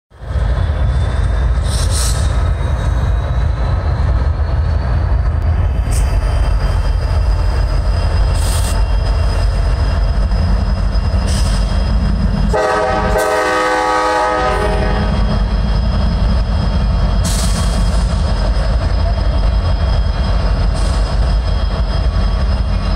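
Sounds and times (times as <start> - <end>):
diesel locomotive engine rumble: 0.1 - 22.9
locomotive air horn: 12.5 - 15.3.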